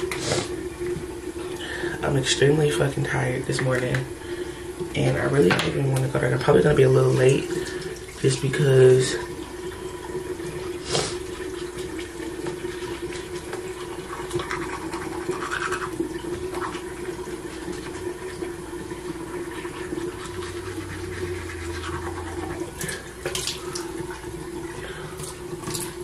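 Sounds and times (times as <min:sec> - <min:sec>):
teeth being brushed: 0:14.2 - 0:16.8, 0:19.7 - 0:22.8.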